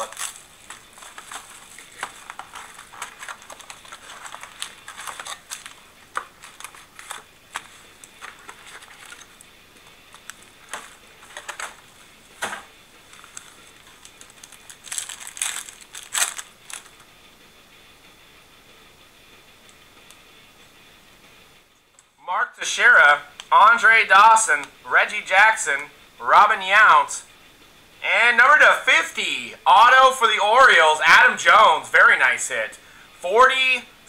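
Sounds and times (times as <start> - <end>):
cards being flipped and slid: 0.0 - 17.1
plastic wrap crinkling: 0.0 - 17.1.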